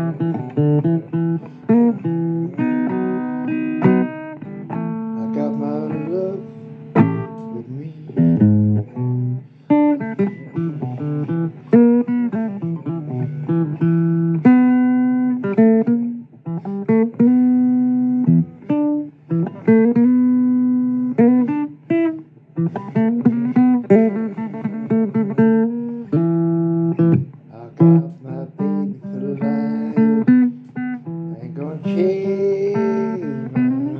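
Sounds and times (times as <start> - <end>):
acoustic blues guitar: 0.0 - 33.9.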